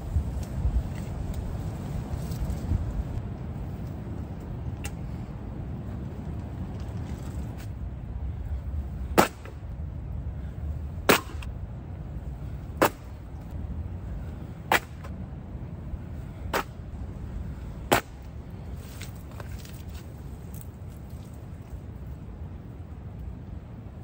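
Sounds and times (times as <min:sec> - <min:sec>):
wind rumble on microphone: 0:00.0 - 0:24.0
sharp knocks on ground: 0:11.1 - 0:11.5.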